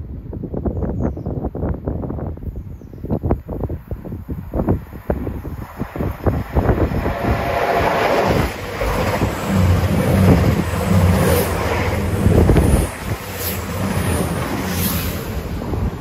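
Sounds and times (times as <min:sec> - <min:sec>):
train wheels rumbling on rails: 0:03.6 - 0:16.0
diesel train engines droning: 0:04.4 - 0:16.0.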